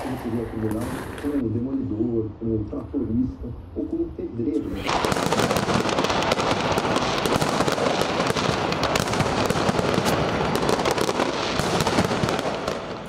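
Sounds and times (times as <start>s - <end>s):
firecrackers crackling: 0.0s - 1.4s, 4.7s - 13.0s.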